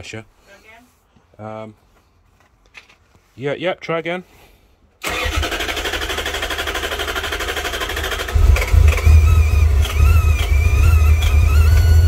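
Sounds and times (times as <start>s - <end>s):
starter motor cranking engine: 5.0s - 12.0s.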